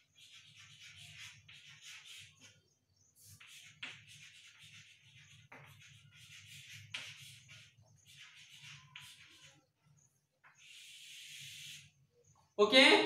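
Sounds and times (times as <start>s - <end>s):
chalk tapping on board: 0.0s - 2.6s, 3.2s - 9.7s
chalk scratching on chalkboard: 0.0s - 12.1s.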